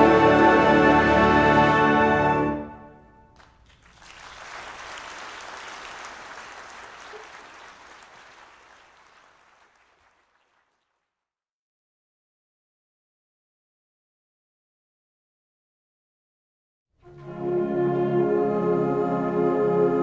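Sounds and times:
audience applauding: 3.3 - 11.1.

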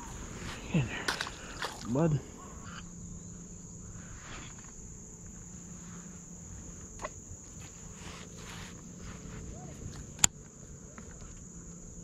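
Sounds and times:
insect chorus: 0.0 - 12.0.

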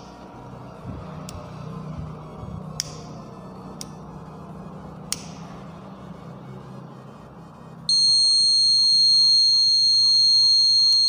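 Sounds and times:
high-pitched electronic buzzer: 7.9 - 11.0.

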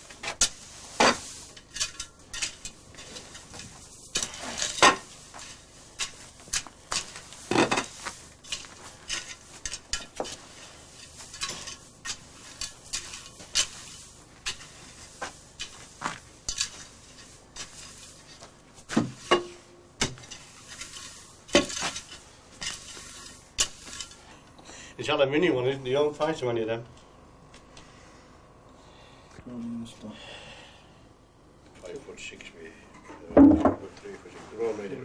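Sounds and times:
shovel scraping through tobacco: 0.0 - 24.3.

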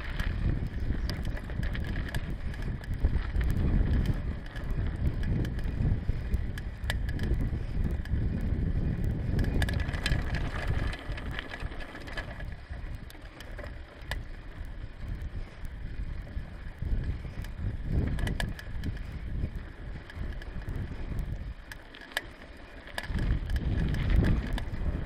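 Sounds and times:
bicycle tyres rumbling: 0.0 - 25.0
bike clicks and rattles: 0.0 - 25.0.

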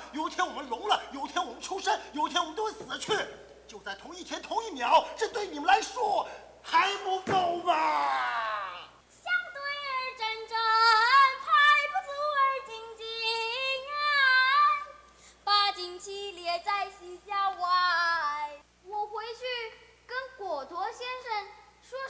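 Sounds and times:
girl singing: 9.1 - 19.6.

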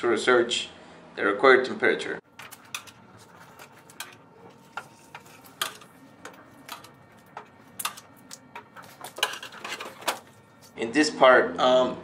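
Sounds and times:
metal tongs clinking on furnace: 2.4 - 8.4.

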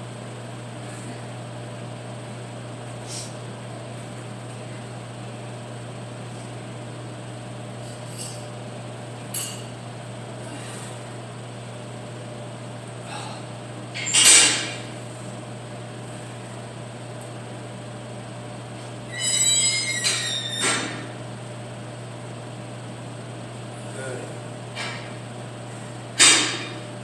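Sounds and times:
low room hum: 0.0 - 27.0.

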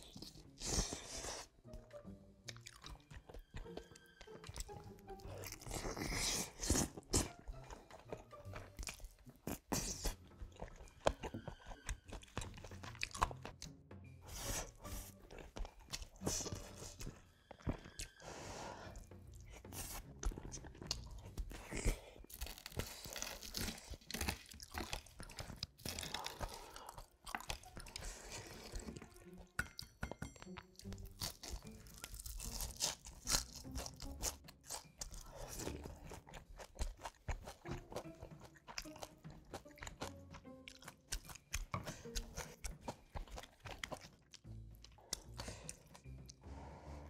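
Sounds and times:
crunching and chewing food: 0.0 - 47.0
soft music: 0.0 - 47.0.

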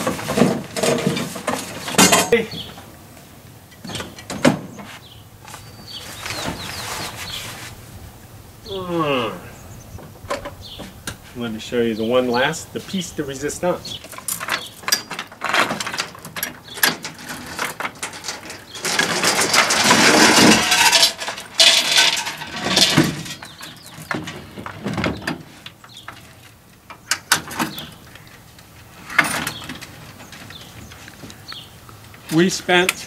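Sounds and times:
metal chains rattling: 14.1 - 23.9.

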